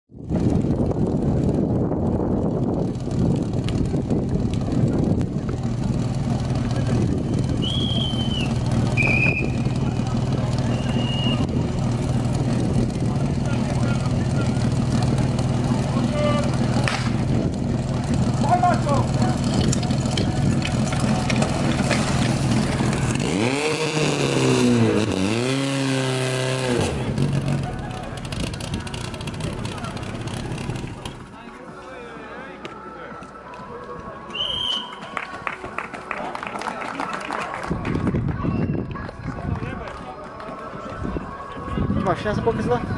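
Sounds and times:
small engine humming: 0:00.4 - 0:31.4
short high whistle-like tones: 0:07.6 - 0:09.6, 0:10.6 - 0:11.5, 0:34.3 - 0:35.2.

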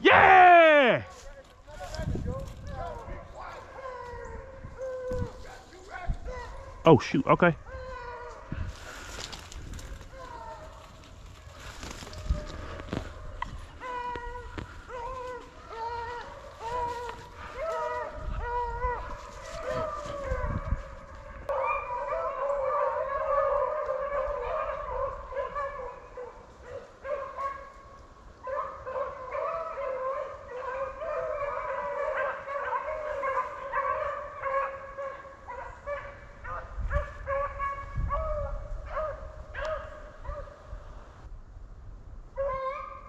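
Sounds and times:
dogs baying: 0:13.7 - 0:27.8, 0:28.5 - 0:40.6.

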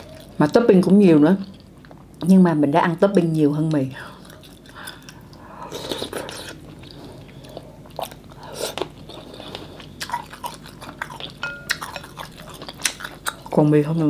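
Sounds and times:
wet chewing: 0:04.1 - 0:14.0.

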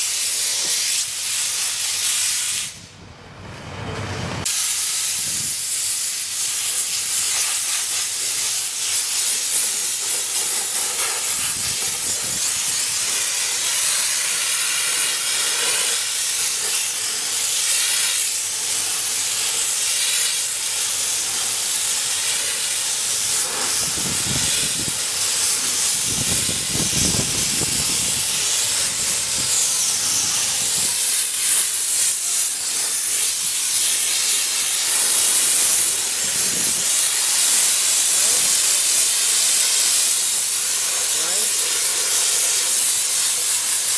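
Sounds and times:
steam wand hissing: 0:00.0 - 0:02.9, 0:04.4 - 0:43.9.

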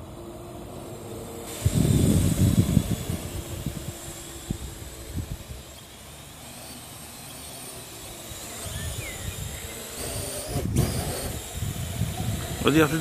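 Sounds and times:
drone rotors whirring: 0:00.0 - 0:13.0.

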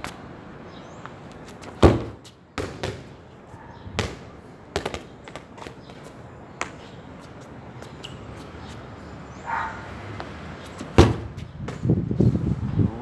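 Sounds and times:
ball kicked and bouncing: 0:01.6 - 0:03.1, 0:04.0 - 0:06.0, 0:10.2 - 0:11.9.

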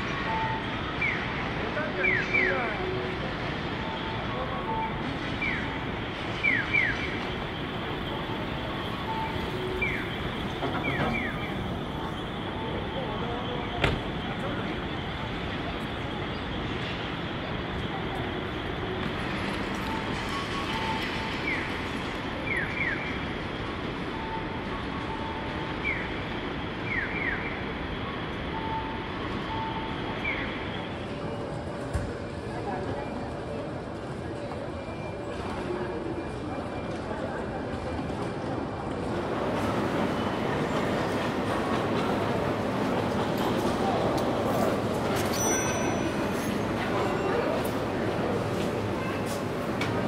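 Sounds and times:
street traffic: 0:00.0 - 0:50.0
crossing signal chirping: 0:02.1 - 0:14.9
traffic rumble: 0:30.7 - 0:50.0.

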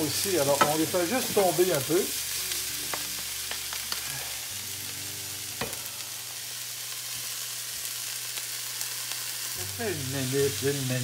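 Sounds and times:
food sizzling in a frying pan: 0:00.0 - 0:11.0
knock on pan: 0:00.6 - 0:00.8.

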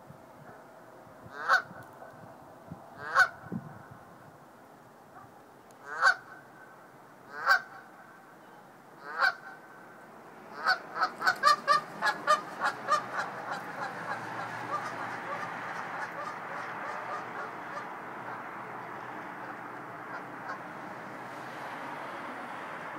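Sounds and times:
goose honking: 0:01.3 - 0:01.7, 0:03.0 - 0:03.4, 0:05.8 - 0:06.4, 0:07.3 - 0:07.9, 0:09.0 - 0:09.6, 0:10.5 - 0:20.7.

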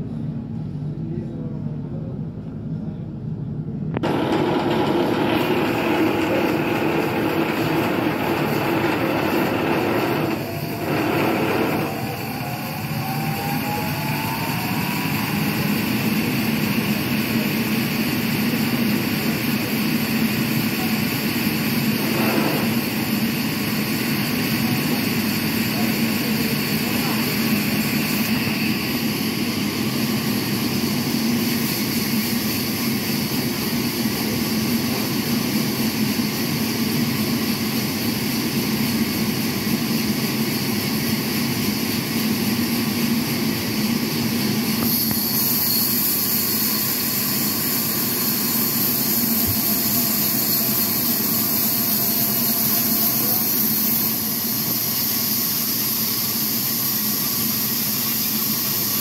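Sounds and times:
band saw cutting log: 0:04.0 - 0:12.0.

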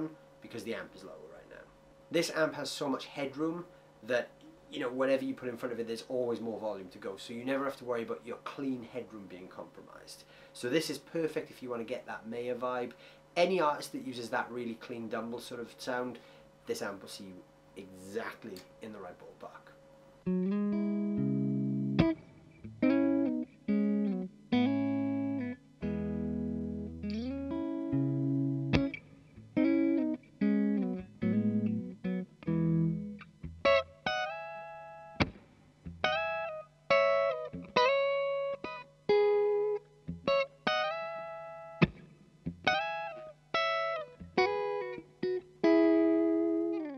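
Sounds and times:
clean electric guitar: 0:20.2 - 0:46.9.

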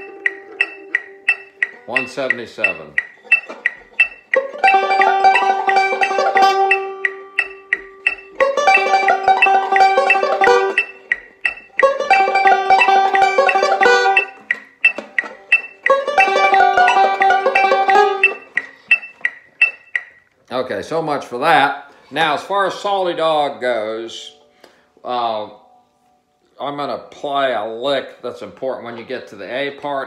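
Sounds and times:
metronome clicks: 0:00.0 - 0:20.4
banjo picking: 0:00.0 - 0:26.0.

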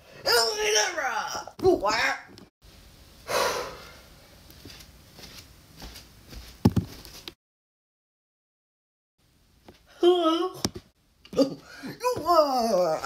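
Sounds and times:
person sighing: 0:03.3 - 0:04.0, 0:11.3 - 0:12.1.

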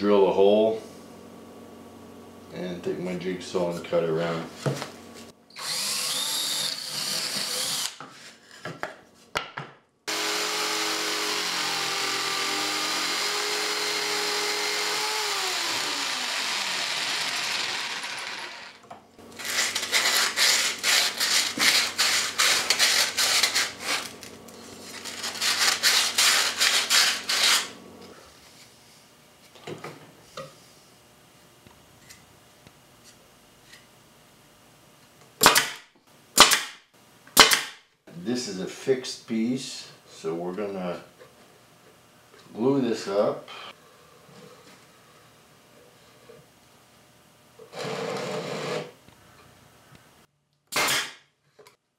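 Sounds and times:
jigsaw cutting in rapid pulses: 0:05.6 - 0:08.0, 0:10.1 - 0:27.8
power drill boring through plywood: 0:05.6 - 0:08.0, 0:10.1 - 0:27.8, 0:47.7 - 0:48.9.

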